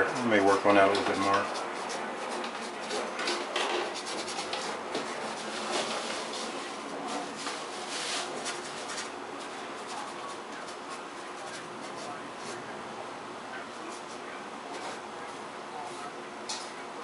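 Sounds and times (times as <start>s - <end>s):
paintbrush scratching on canvas: 0.8s - 12.7s.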